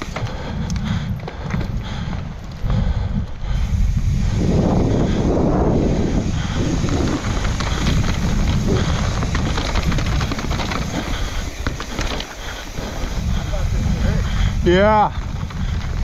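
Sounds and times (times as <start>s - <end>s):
tyres on dirt: 0.0s - 2.7s, 3.6s - 16.0s
wind buffeting microphone: 0.0s - 16.0s
bike rattling over rocks: 4.5s - 16.0s.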